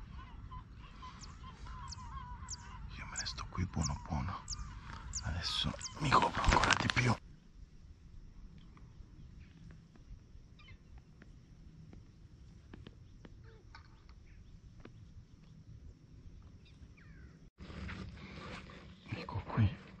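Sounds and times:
gulls calling: 0:00.0 - 0:07.2.

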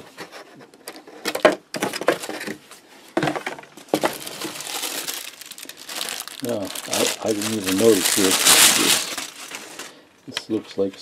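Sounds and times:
packing paper rustling: 0:03.9 - 0:10.0.

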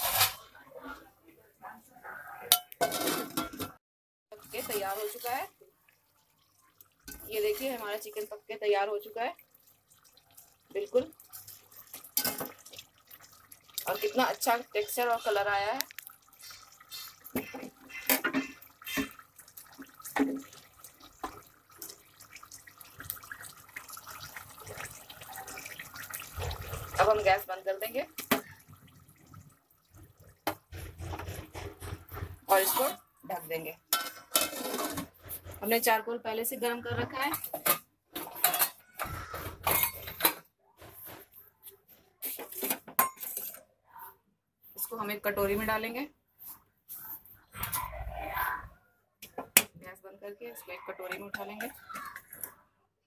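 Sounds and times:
thick gravy simmering: 0:04.7 - 0:08.4, 0:09.1 - 0:27.4, 0:28.2 - 0:33.2
metal pot and spoon clinking: 0:33.9 - 0:35.1, 0:39.6 - 0:40.4, 0:42.6 - 0:43.6.

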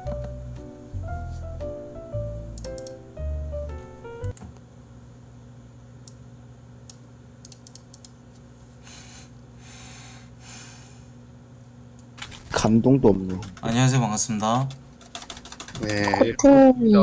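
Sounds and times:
low electrical hum: 0:00.0 - 0:17.0
computer keys clicking: 0:02.6 - 0:03.0, 0:07.4 - 0:08.2, 0:12.0 - 0:16.2.

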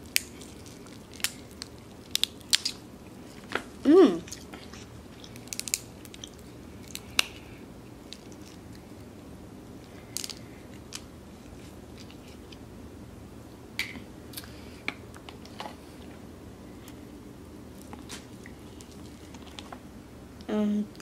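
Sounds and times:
crab shell cracking: 0:00.0 - 0:02.8, 0:05.2 - 0:07.4.

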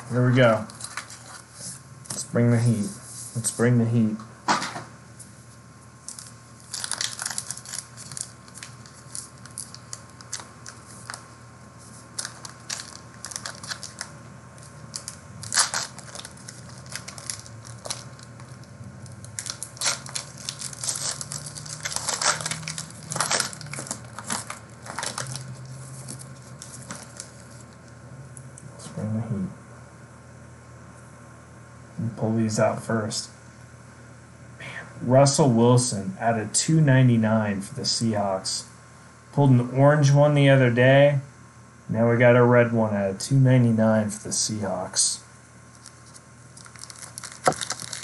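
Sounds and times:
faint low hum: 0:00.0 - 0:48.0
wrappers tearing and crinkling: 0:06.1 - 0:11.2, 0:12.1 - 0:27.9, 0:45.7 - 0:48.0.

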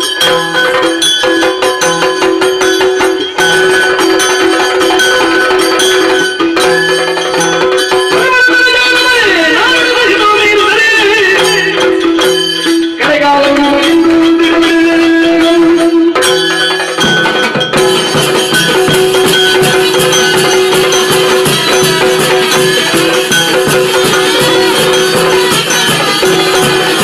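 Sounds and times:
drum strokes: 0:00.0 - 0:27.0
hand cymbals: 0:00.0 - 0:27.0
person singing: 0:13.0 - 0:16.3.

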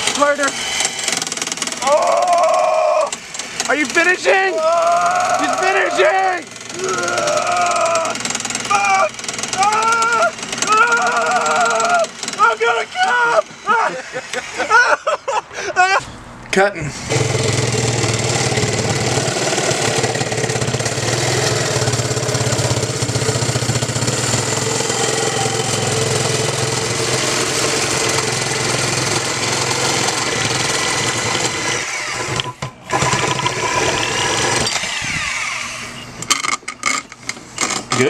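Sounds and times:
reciprocating saw cutting metal pipe: 0:00.0 - 0:14.7, 0:17.0 - 0:38.0.

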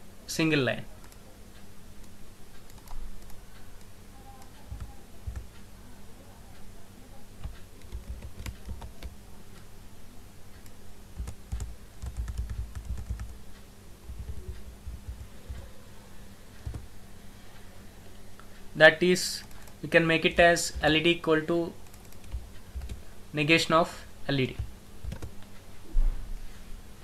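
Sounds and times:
faint low hum: 0:00.0 - 0:27.0
keyboard typing clicks: 0:02.0 - 0:05.7, 0:07.4 - 0:09.2, 0:10.6 - 0:15.7, 0:16.6 - 0:16.9, 0:21.8 - 0:23.0, 0:24.6 - 0:25.4.

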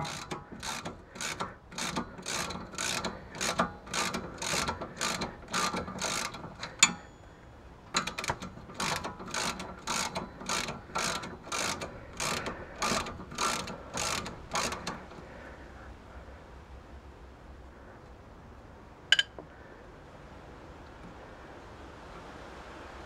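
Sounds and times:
ratchet wrench clicking: 0:00.0 - 0:07.1, 0:07.9 - 0:15.2
sharp metallic clink: 0:19.1 - 0:19.4.

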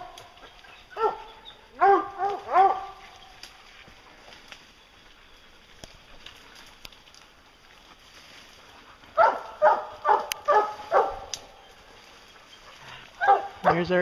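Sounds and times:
hound barking: 0:00.0 - 0:03.2, 0:09.1 - 0:11.6, 0:12.4 - 0:14.0.

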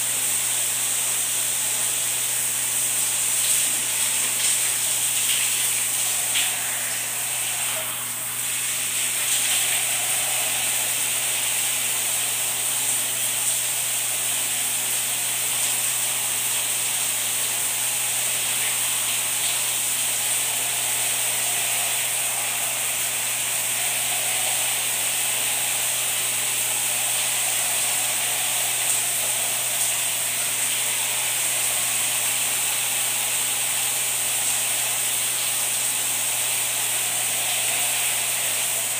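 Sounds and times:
shower water running: 0:00.0 - 0:38.9
toothbrush scrubbing teeth: 0:03.4 - 0:13.6.

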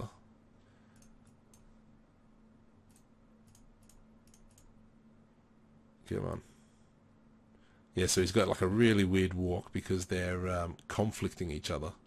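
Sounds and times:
faint steady hum: 0:00.0 - 0:12.0
computer mouse clicks: 0:00.9 - 0:01.8, 0:02.8 - 0:04.8
keyboard clicks: 0:02.9 - 0:04.7.

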